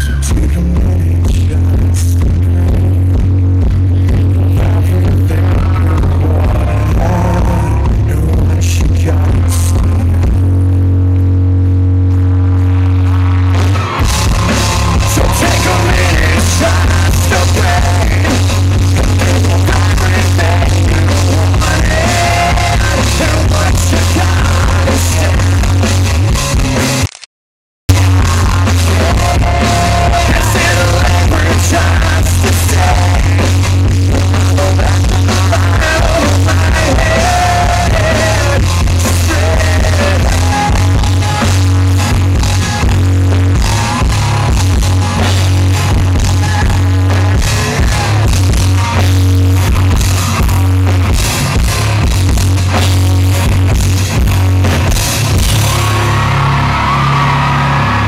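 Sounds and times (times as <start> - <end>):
man singing lead vocal: 0.0 - 10.4, 14.6 - 26.0, 27.9 - 41.6, 46.2 - 48.4
distorted live rock band: 0.0 - 27.2, 27.9 - 58.0.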